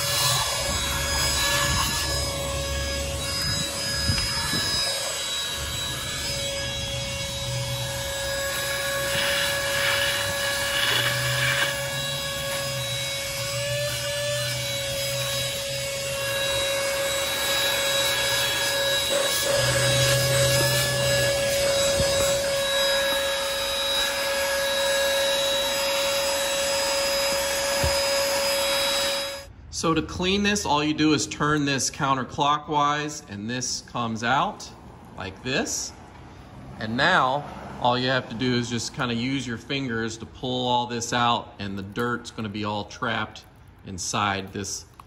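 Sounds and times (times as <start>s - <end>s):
handheld vacuum motor whine: 0.0s - 29.5s.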